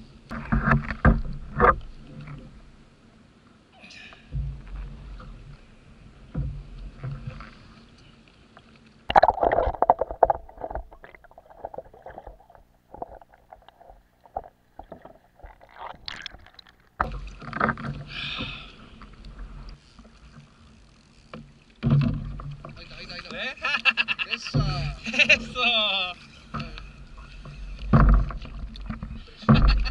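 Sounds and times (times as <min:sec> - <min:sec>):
water slapping against a kayak: 0:08.6 - 0:20.7, 0:21.3 - 0:23.6, 0:24.3 - 0:29.9
loud splash: 0:09.1 - 0:13.9.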